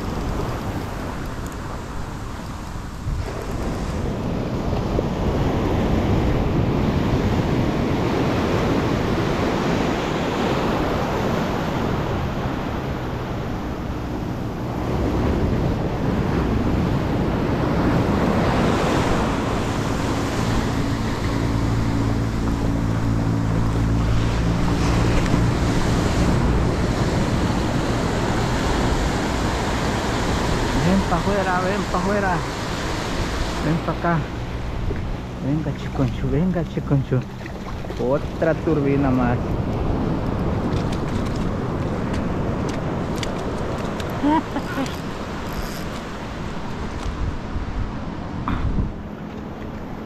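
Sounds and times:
ocean surf breaking on sand: 0:00.0 - 0:50.0.

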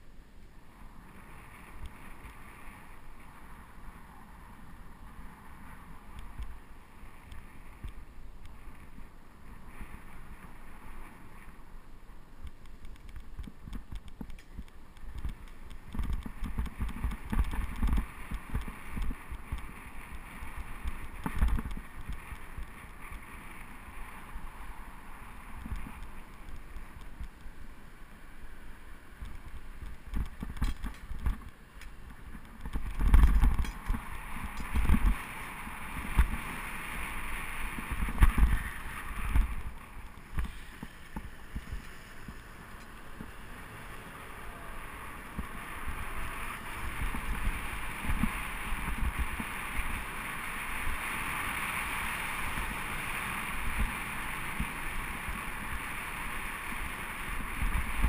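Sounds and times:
road and traffic hiss: 0:00.0 - 0:58.0
wind buffeting microphone: 0:12.8 - 0:27.5, 0:28.9 - 0:44.1.

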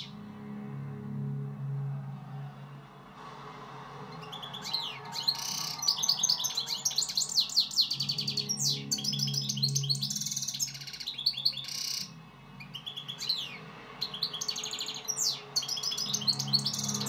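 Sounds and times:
goldfinch singing: 0:04.3 - 0:17.0.

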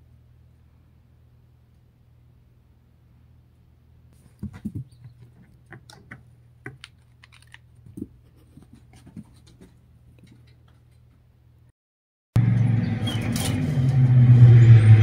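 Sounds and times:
low steady hum: 0:00.0 - 0:11.7
cat claws scratching carpet: 0:04.2 - 0:10.9.

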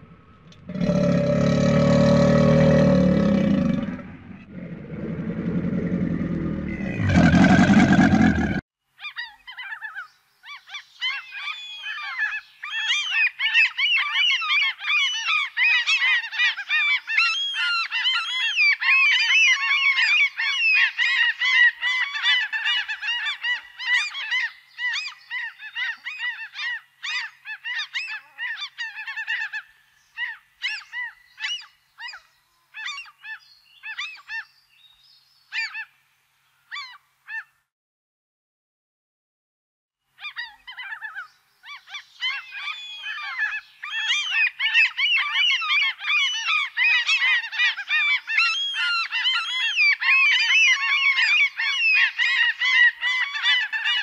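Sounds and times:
gulls calling: 0:00.0 - 0:08.6
loud low rumble: 0:03.9 - 0:08.6.

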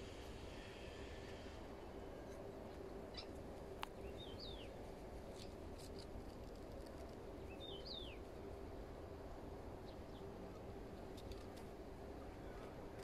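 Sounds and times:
outdoor background hum: 0:00.0 - 0:13.0
songbird chirp: 0:03.0 - 0:06.0, 0:06.9 - 0:08.3.

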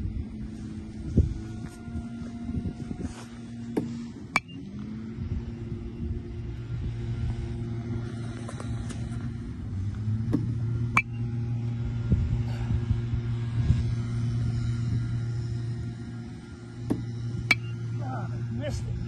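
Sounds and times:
pitching machine motor humming: 0:00.0 - 0:19.0.

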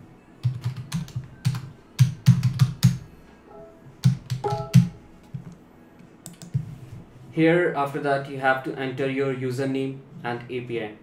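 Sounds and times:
keyboard typing: 0:00.4 - 0:05.5, 0:06.2 - 0:06.6.

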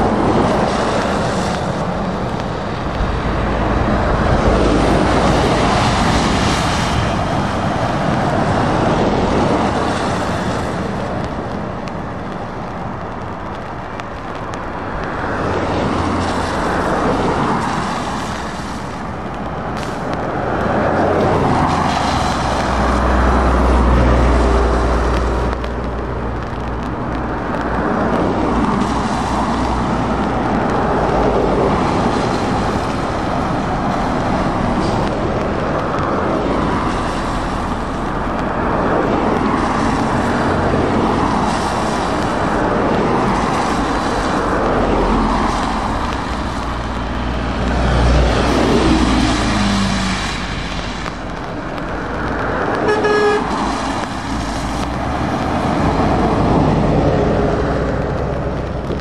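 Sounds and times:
diesel engines passing: 0:00.0 - 0:59.0
tyres hissing on wet road: 0:00.0 - 0:59.0
car horn toot: 0:52.8 - 0:53.6.

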